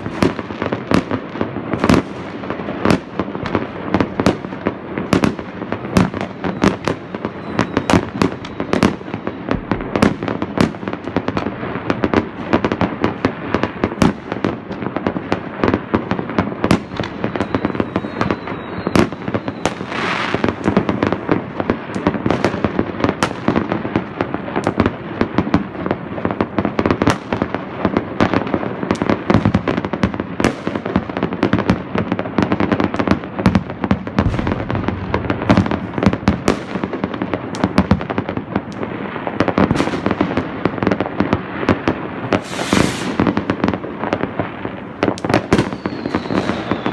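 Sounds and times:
firecracker crackle: 0:00.0 - 0:46.9
fireworks bangs: 0:00.0 - 0:46.9
brief hiss: 0:42.4 - 0:43.2.

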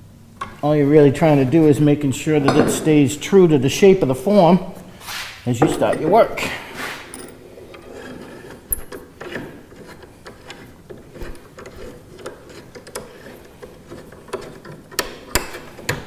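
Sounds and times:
clicks and knocks of metal and wood: 0:07.1 - 0:16.0.

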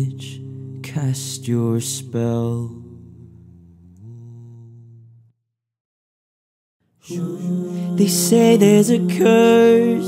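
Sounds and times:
music: 0:06.9 - 0:10.0.

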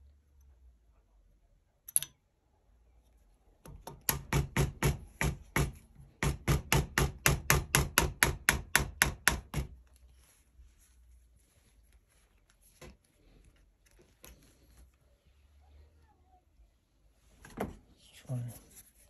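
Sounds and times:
hammer tapping steel punch: 0:03.6 - 0:09.7.

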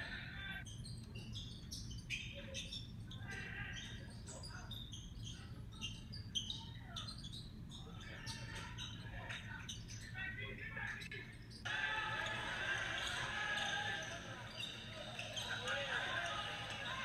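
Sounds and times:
basketball shoes squeaking: 0:00.6 - 0:10.2, 0:11.0 - 0:17.0
arena crowd murmur: 0:11.7 - 0:17.0.

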